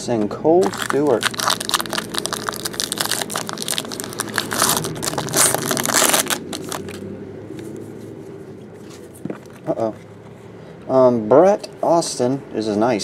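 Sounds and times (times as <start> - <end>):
foil wrapper crinkling: 0.6 - 7.0.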